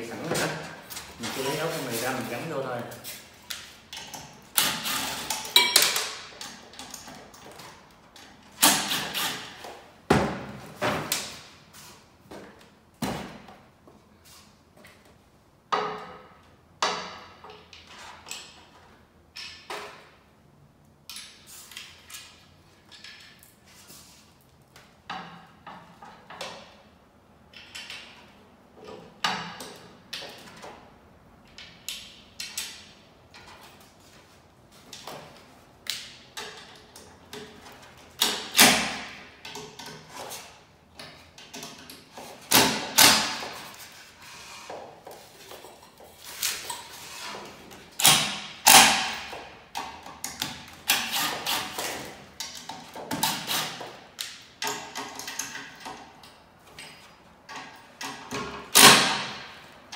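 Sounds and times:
knocks and clatter of hardware: 0:03.6 - 0:09.2, 0:15.7 - 0:20.2, 0:21.1 - 0:23.6, 0:25.0 - 0:33.8, 0:36.0 - 0:44.0, 0:44.7 - 0:59.9.

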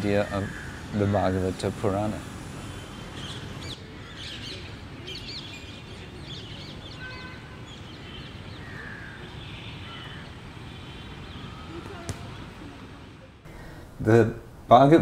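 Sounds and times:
birds chirping: 0:00.0 - 0:14.4.

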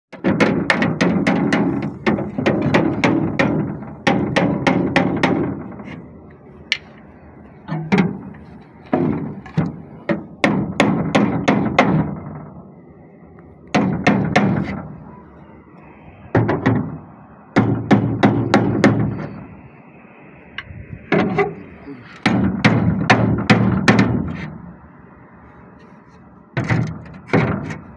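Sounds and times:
hammer striking metal boat: 0:00.1 - 0:06.0, 0:07.6 - 0:12.6, 0:13.7 - 0:15.1, 0:16.3 - 0:19.5, 0:20.6 - 0:24.7, 0:26.6 - 0:27.9.

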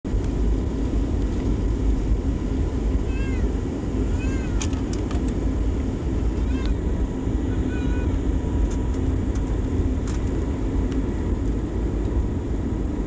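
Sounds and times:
engine and wheel rumble: 0:00.0 - 0:13.0
faint constant hum: 0:00.1 - 0:13.0.

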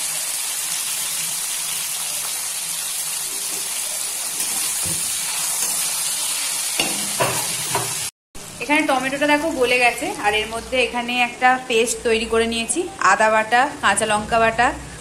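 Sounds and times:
tomatoes sizzling in hot oil: 0:00.0 - 0:12.0
steel spatula scraping wok: 0:06.7 - 0:08.1.

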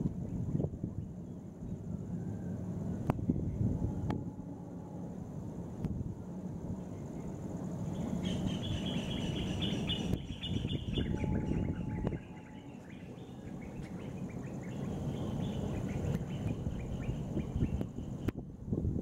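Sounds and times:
high insect drone: 0:00.0 - 0:18.4
birds chirping: 0:06.9 - 0:18.3.

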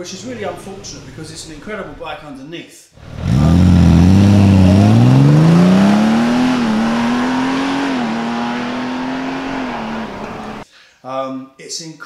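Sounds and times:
gear upshifts: 0:03.0 - 0:10.6
motorcycle engine accelerating: 0:03.0 - 0:10.6.

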